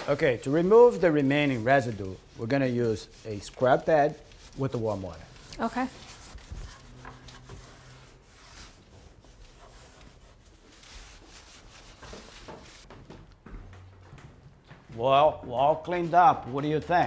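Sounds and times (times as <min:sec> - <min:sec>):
scrub pad rubbing wood: 0:00.3 - 0:12.9.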